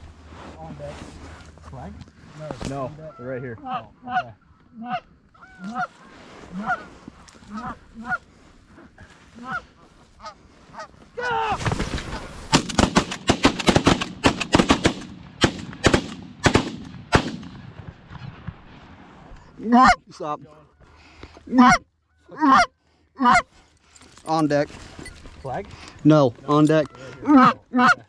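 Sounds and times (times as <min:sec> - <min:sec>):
geese honking: 0:03.0 - 0:08.3, 0:09.4 - 0:11.0, 0:20.7 - 0:23.5, 0:26.8 - 0:28.0
shotgun shots: 0:12.5 - 0:17.7.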